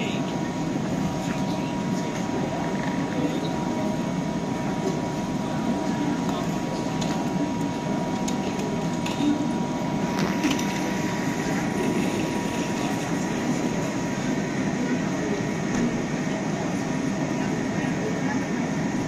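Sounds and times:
train hum and hiss: 0.0s - 19.0s.

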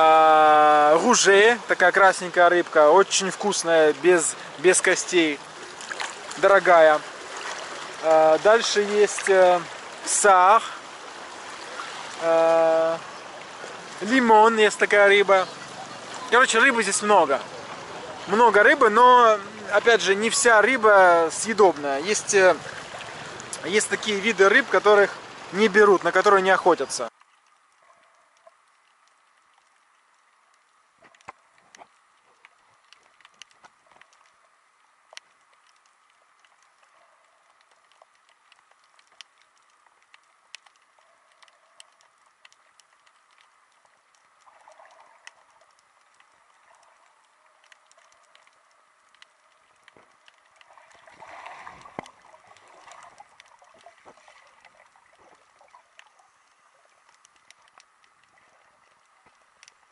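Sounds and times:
low underwater hiss: 0.0s - 25.6s, 26.8s - 59.9s
underwater clicks and crackles: 0.6s - 59.9s
water movement whooshing: 3.1s - 26.3s, 50.5s - 57.2s.

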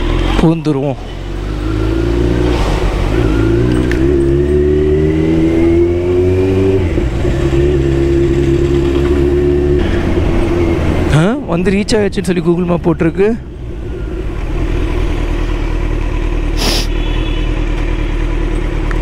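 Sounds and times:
motorcycle engine accelerating: 1.0s - 11.4s, 13.0s - 19.0s.

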